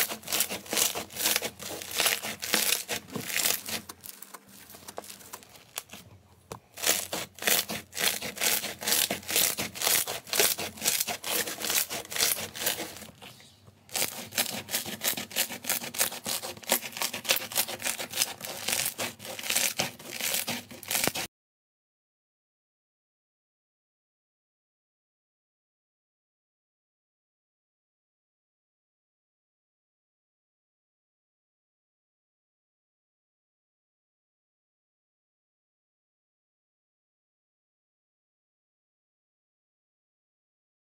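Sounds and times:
slime crackling and popping: 0:00.0 - 0:06.0, 0:06.7 - 0:13.2, 0:13.9 - 0:21.3.

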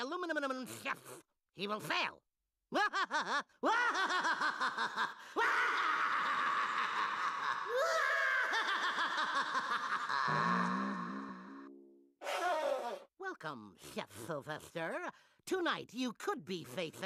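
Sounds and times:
cartoon villain laugh: 0:02.8 - 0:11.2.

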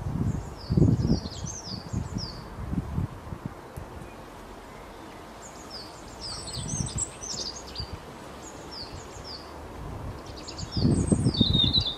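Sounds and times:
songbirds chirping: 0:00.0 - 0:11.9.

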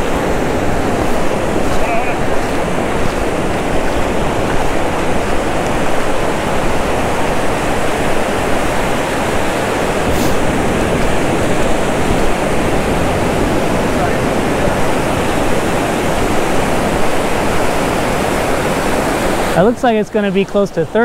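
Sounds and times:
ocean surf rushing: 0:00.0 - 0:21.0.

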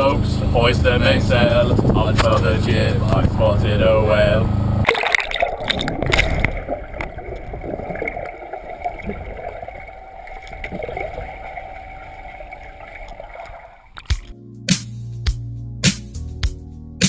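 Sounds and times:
underwater clicks and gurgles: 0:04.8 - 0:14.3
underwater watery wash: 0:04.8 - 0:14.3
music with sharp beats: 0:14.0 - 0:16.7.

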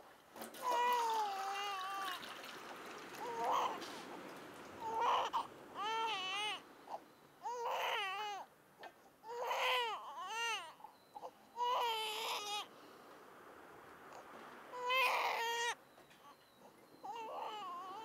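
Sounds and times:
infant crying: 0:00.6 - 0:02.2, 0:03.2 - 0:03.8, 0:04.8 - 0:08.5, 0:09.2 - 0:12.7, 0:14.7 - 0:15.8, 0:17.0 - 0:18.0.

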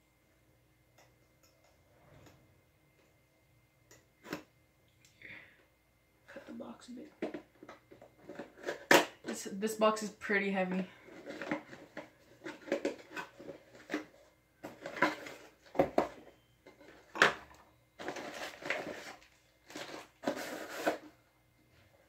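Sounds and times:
cardboard rustling and scraping: 0:11.0 - 0:17.3, 0:18.0 - 0:21.2.

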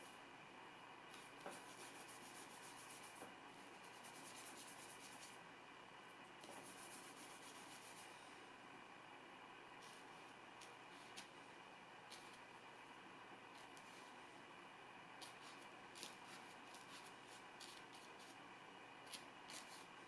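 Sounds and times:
brush scrubbing paint on palette: 0:01.1 - 0:03.2, 0:03.8 - 0:05.4, 0:06.4 - 0:08.1, 0:12.1 - 0:12.4, 0:15.2 - 0:18.4, 0:19.1 - 0:20.0.

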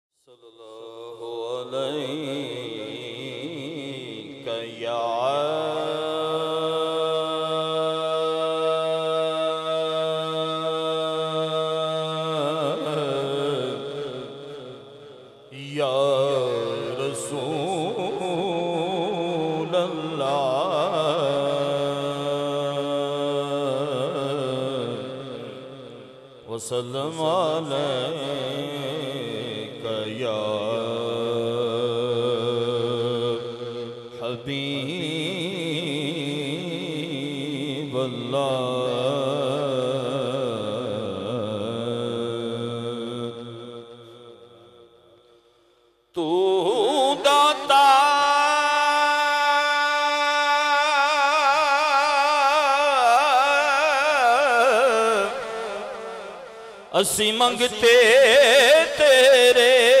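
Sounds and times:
man chanting melodically: 0:00.3 - 0:45.1, 0:46.2 - 1:00.0
man singing long note: 0:46.2 - 1:00.0.

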